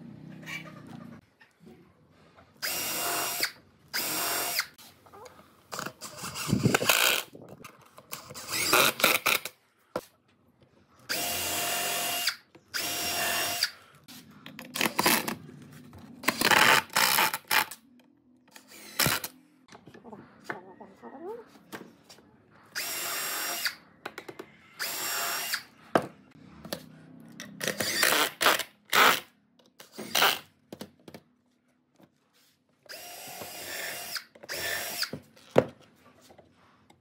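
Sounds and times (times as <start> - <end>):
cordless drill drilling into wood: 2.6 - 4.8, 11.1 - 13.8, 22.8 - 23.8, 24.8 - 25.7, 32.9 - 35.2
impact driver driving a screw: 27.6 - 29.3.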